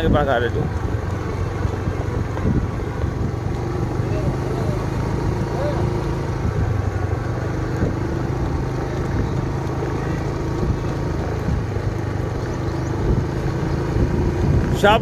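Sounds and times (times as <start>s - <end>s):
motor scooter engine running: 0.0s - 15.0s.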